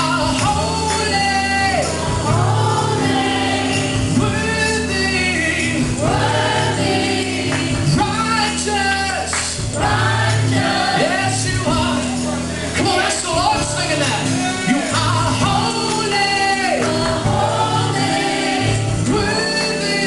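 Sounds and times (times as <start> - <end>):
man singing lead: 0.0 - 6.2, 10.8 - 20.0
acoustic guitar: 0.0 - 20.0
backing singers: 0.0 - 20.0
keyboard chords: 0.0 - 20.0.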